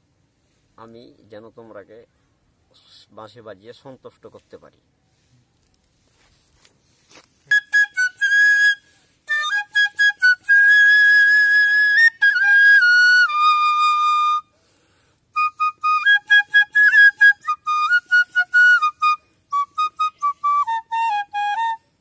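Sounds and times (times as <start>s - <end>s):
bamboo flute playing a tune: 7.4s - 14.6s, 15.3s - 22.0s.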